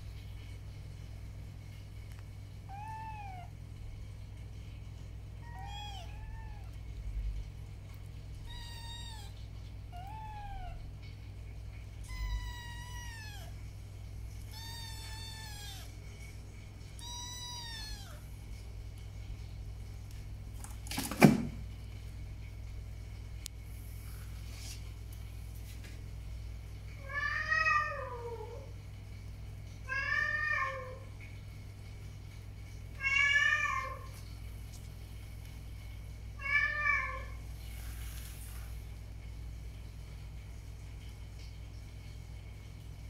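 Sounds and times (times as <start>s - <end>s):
steady low hum: 0.0s - 20.9s
kittens mewing: 8.4s - 10.8s, 12.0s - 13.6s, 14.4s - 16.1s, 16.9s - 18.3s.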